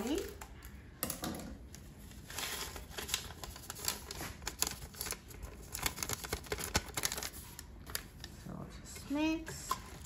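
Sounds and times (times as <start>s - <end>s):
paper packet crinkling: 2.0s - 8.4s.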